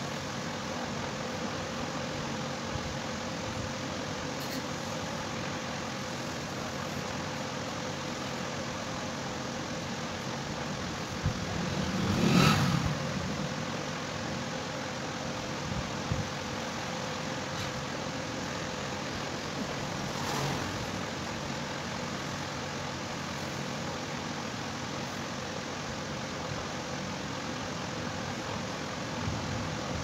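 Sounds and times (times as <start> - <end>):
faint constant hum: 0.0 - 30.0.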